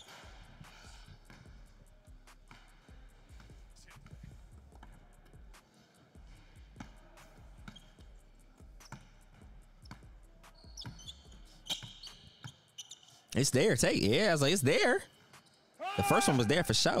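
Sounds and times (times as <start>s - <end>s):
faint background music: 0.0s - 17.0s
basketball bouncing on hardwood: 9.9s - 12.6s.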